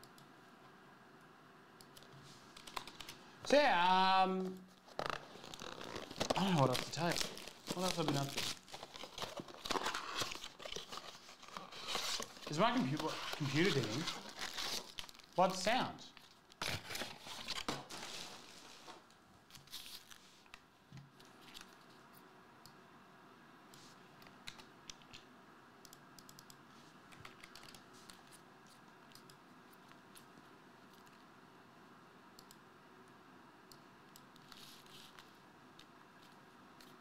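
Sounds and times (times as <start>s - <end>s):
computer keyboard keystrokes: 1.8s - 3.2s, 25.9s - 27.8s
foil packs rustling: 4.9s - 15.6s, 16.6s - 19.0s.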